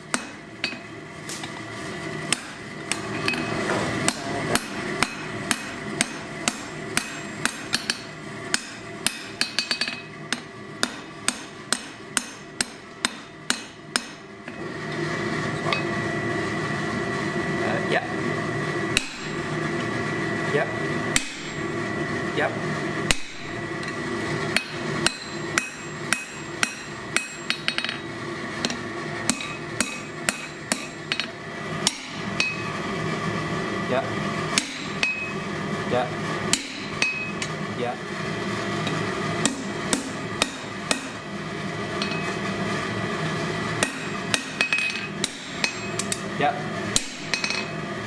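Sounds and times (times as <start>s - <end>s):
hammer striking steel on anvil: 0.0s - 1.5s, 2.3s - 14.6s, 19.0s - 19.5s, 21.2s - 21.7s, 23.1s - 32.8s, 34.5s - 35.4s, 36.5s - 37.6s, 38.8s - 41.3s, 42.0s - 42.4s, 43.8s - 46.3s, 47.0s - 47.8s
steady hum: 0.0s - 48.0s.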